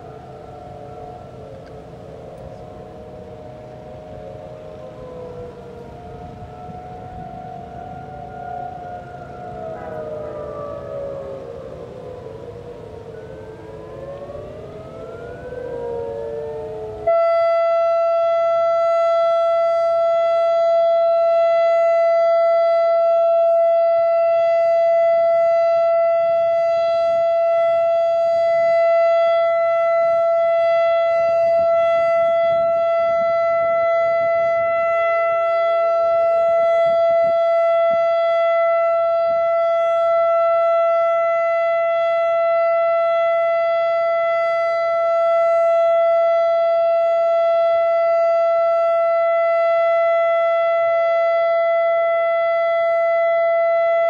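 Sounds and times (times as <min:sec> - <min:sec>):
gliding siren tones: 0:00.0 - 0:54.0
warning siren steady tone: 0:00.0 - 0:54.0.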